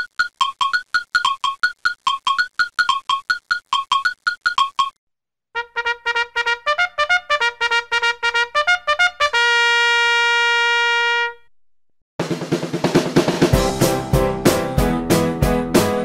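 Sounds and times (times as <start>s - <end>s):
trumpet fanfare: 5.6s - 11.5s
music with drums: 12.2s - 16.0s.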